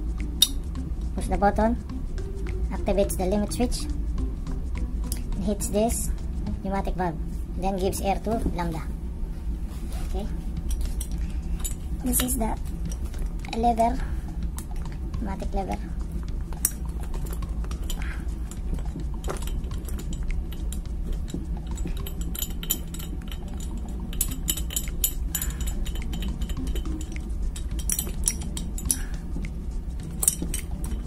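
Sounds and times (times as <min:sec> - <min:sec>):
steady low hum: 0:00.0 - 0:31.0
metal parts clicking and clinking: 0:10.6 - 0:13.7, 0:16.5 - 0:31.0.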